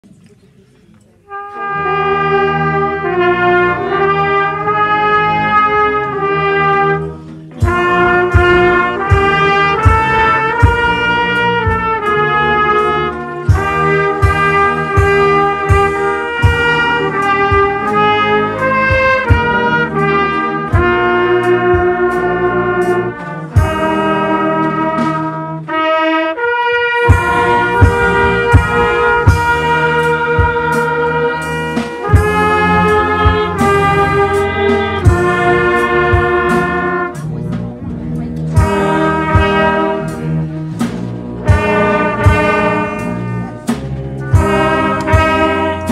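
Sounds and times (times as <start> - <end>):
brass band playing: 1.2 - 45.9
trumpet lead: 1.2 - 45.9
steady drum beat: 7.5 - 45.9.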